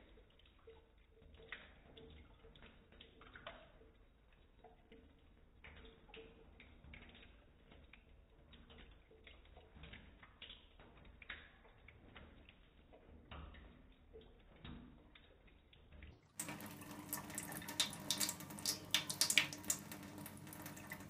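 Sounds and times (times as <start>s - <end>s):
cat lapping water: 0.0s - 21.0s
trickling tap: 4.6s - 21.0s.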